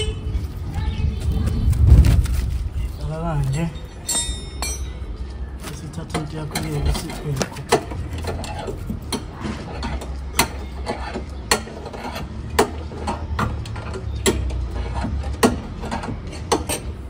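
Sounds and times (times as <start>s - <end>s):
metal scraping: 5.7s - 17.0s.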